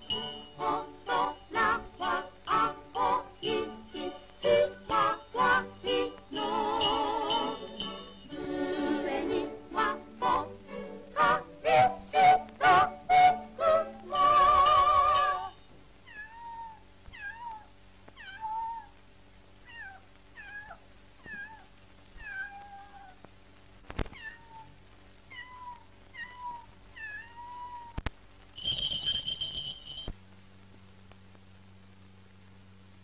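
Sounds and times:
sung musical phrase: 0.0 - 15.6
faint steady hum: 0.0 - 33.0.

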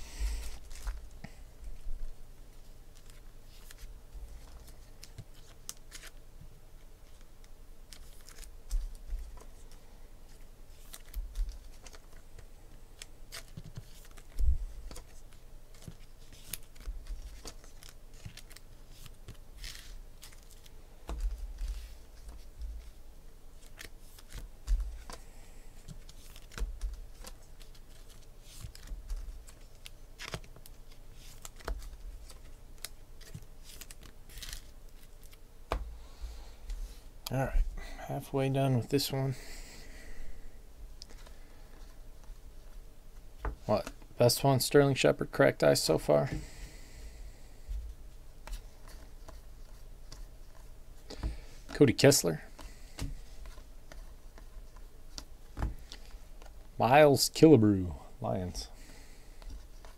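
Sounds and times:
trading cards handled by hand: 0.0 - 59.9
cards thumping down: 52.5 - 56.5.

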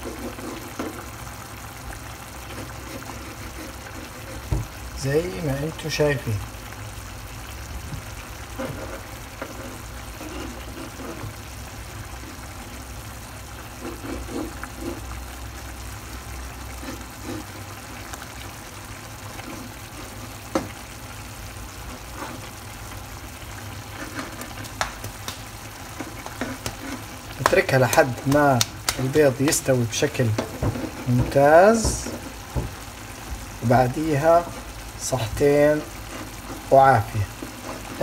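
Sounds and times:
sauce sizzling in a pan: 0.0 - 38.0
metal spatula tapping a pan: 26.0 - 29.7, 30.3 - 32.8.

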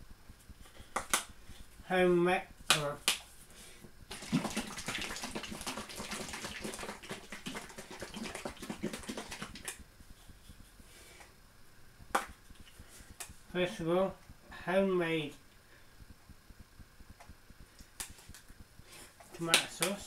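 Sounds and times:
sauce sloshing in shaken bottle: 4.1 - 9.8.

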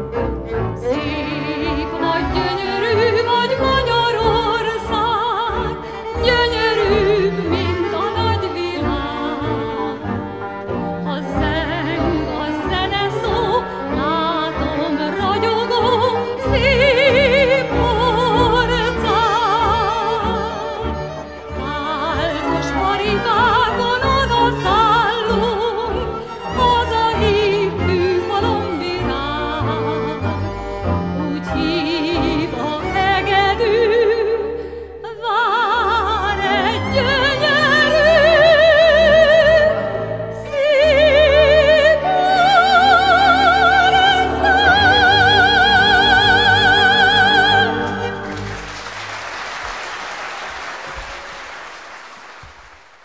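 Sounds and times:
orchestra led by violin: 0.0 - 52.7
woman singing with vibrato: 0.8 - 10.1, 11.0 - 20.8, 31.3 - 48.4
applause: 47.8 - 53.0.

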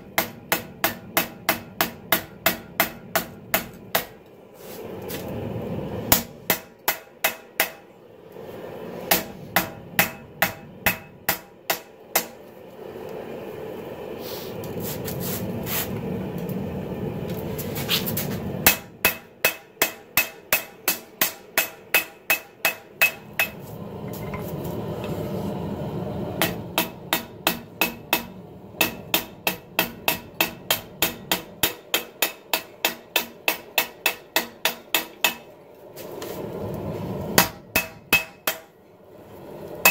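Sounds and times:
hammer striking hot steel on anvil: 0.0 - 4.3, 6.1 - 7.9, 9.1 - 12.4, 18.6 - 24.5, 26.4 - 35.5, 37.4 - 38.8
steady rushing noise: 22.6 - 33.9.

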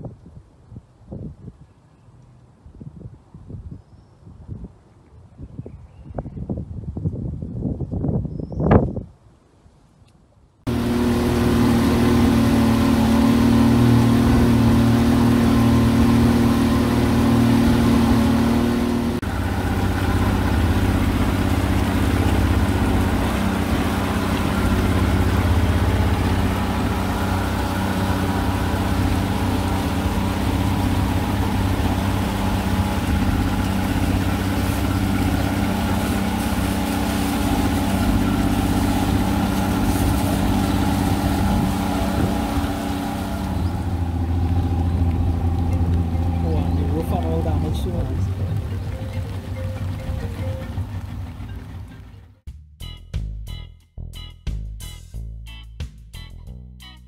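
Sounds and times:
outboard motor running: 10.7 - 52.5.

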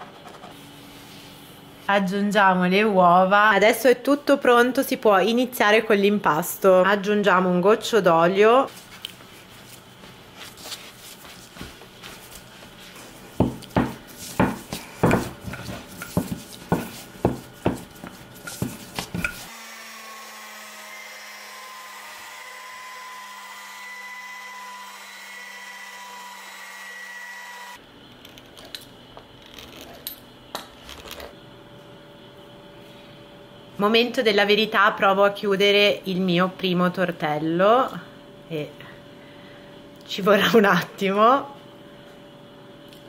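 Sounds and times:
dough kneading thumps: 11.2 - 19.5
pasta machine motor hum: 12.0 - 30.0.

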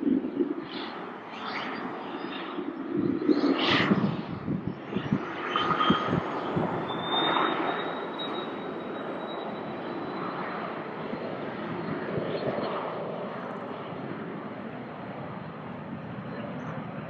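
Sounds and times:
high turbine whine: 0.0 - 13.7
jet engines running: 0.0 - 17.0
gusty low rumble: 2.6 - 7.2.

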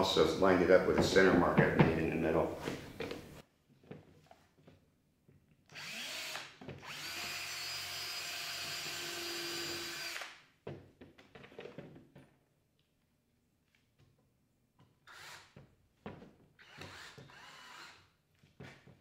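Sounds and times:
cordless drill driving screw: 5.7 - 10.4, 15.0 - 15.6, 16.6 - 18.0.

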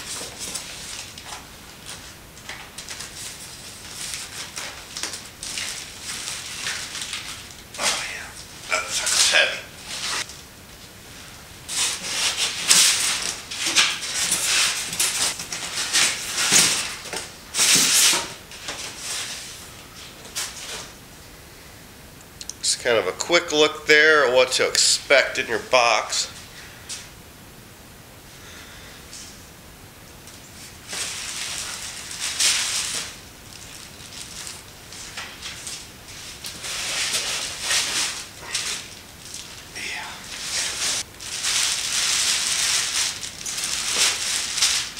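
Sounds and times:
plastic wrap crinkling: 0.0 - 10.8, 11.7 - 21.0, 30.3 - 44.9.

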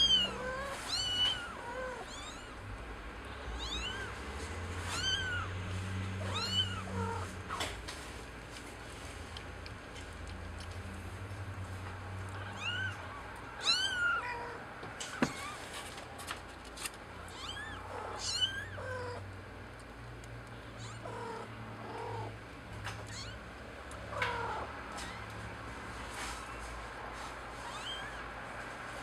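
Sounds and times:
kittens mewing: 0.0 - 7.8, 12.2 - 16.0, 17.2 - 19.3, 20.6 - 25.7, 27.6 - 28.4.

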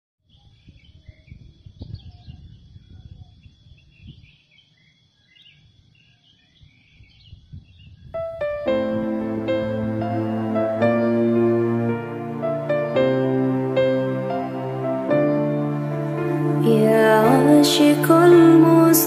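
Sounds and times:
birds chirping: 0.3 - 19.0
sustained keyboard notes: 8.2 - 19.0.

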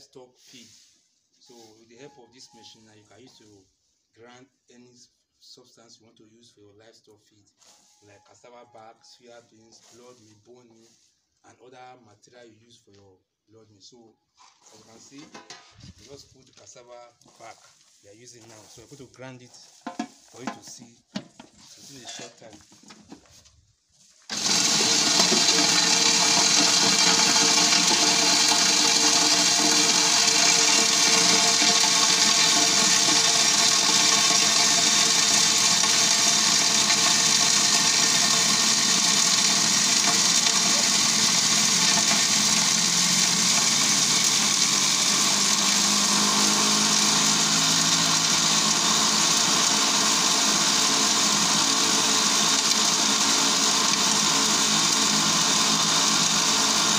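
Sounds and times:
grinding rushing hiss: 24.3 - 45.6
feed grinder motor whine: 24.3 - 56.9.

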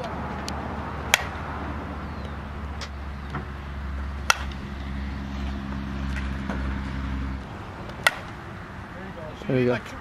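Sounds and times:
steady low hum: 0.9 - 10.0
bat cracking a ball: 1.1 - 1.4, 4.2 - 4.7, 7.5 - 8.6.

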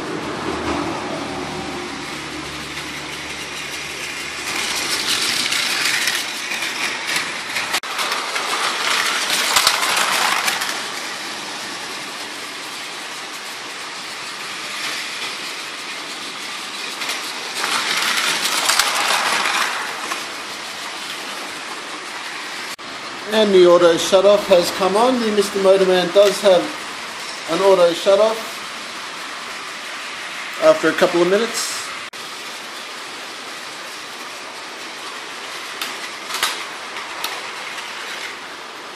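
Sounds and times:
toy train motor whirring: 1.6 - 22.8, 32.4 - 38.6.

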